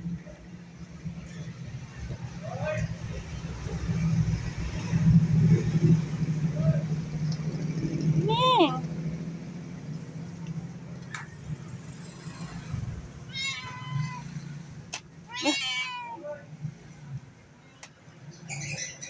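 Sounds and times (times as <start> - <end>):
cat meowing: 13.3 - 14.4, 15.3 - 16.2.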